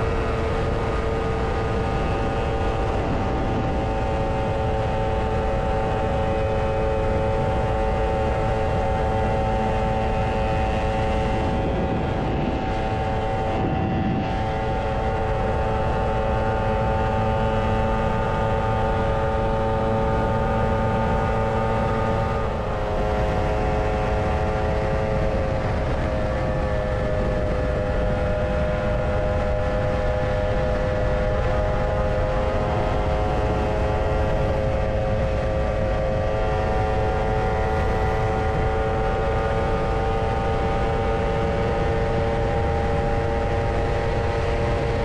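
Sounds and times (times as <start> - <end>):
wind and road noise: 0.0 - 45.0.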